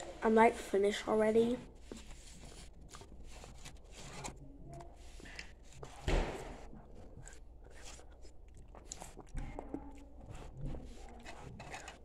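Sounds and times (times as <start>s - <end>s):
faint rustling and scraping: 0.0s - 8.2s, 9.4s - 12.0s
thump: 6.0s - 6.6s.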